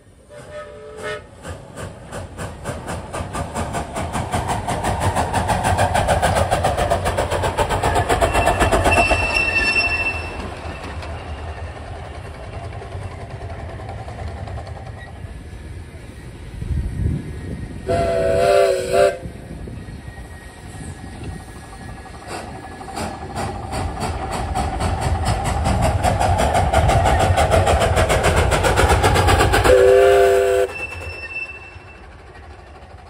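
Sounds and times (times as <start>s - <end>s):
steam locomotive exhaust chuffs: 0.0s - 33.0s
steam whistle note: 0.3s - 1.3s, 17.8s - 19.3s, 29.7s - 32.0s.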